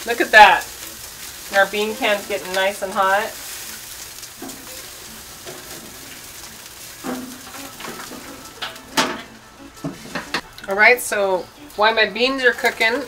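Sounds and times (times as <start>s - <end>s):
meat sizzling on a grill: 0.0s - 13.0s
grill lid knock: 7.0s - 10.4s.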